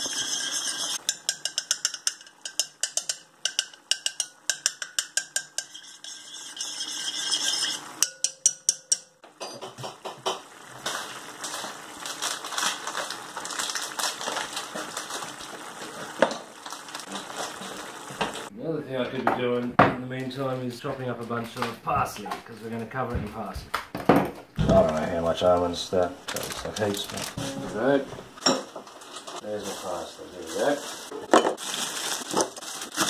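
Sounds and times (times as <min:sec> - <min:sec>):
metal spoon clinking against saucepan: 0:00.0 - 0:09.8.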